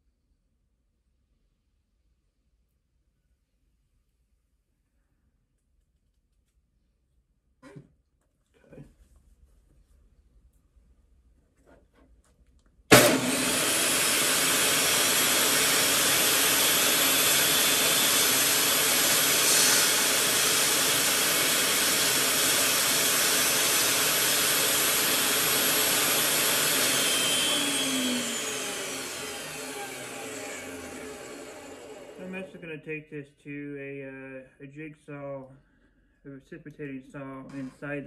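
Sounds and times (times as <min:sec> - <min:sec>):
table saw whining: 0:12.9 - 0:32.5.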